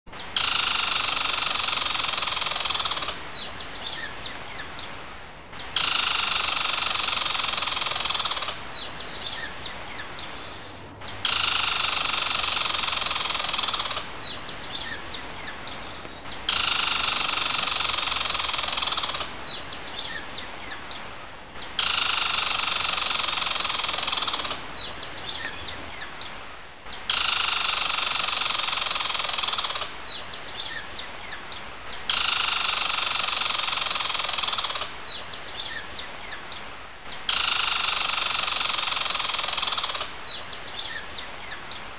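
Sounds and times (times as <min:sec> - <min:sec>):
quick high bird chirps: 0:00.1 - 0:28.2.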